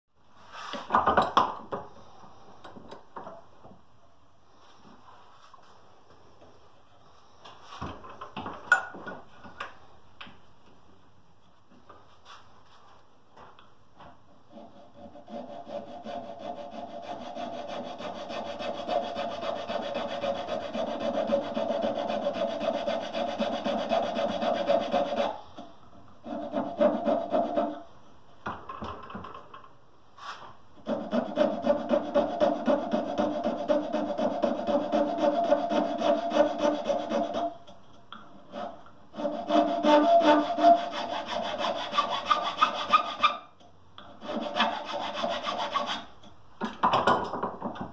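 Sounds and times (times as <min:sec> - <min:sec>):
hand file scraping wood: 0:14.5 - 0:25.5, 0:26.2 - 0:27.9, 0:30.2 - 0:37.6, 0:38.4 - 0:43.5, 0:44.2 - 0:46.1.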